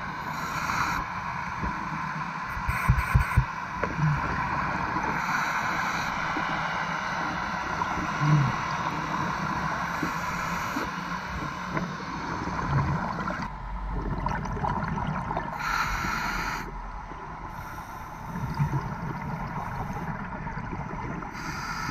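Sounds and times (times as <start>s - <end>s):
underwater rushing noise: 0.0s - 21.9s
hiss of bubbles: 4.3s - 6.8s, 14.4s - 16.7s, 17.5s - 21.9s.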